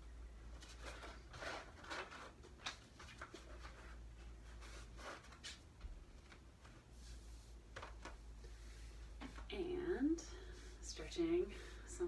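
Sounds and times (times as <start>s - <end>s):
low steady hum: 0.0s - 12.0s
rustles on yoga mat: 2.9s - 12.0s.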